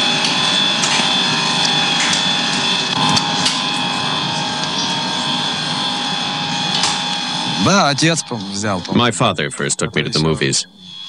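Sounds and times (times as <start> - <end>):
film projector whirring and clattering: 6.7 - 7.1.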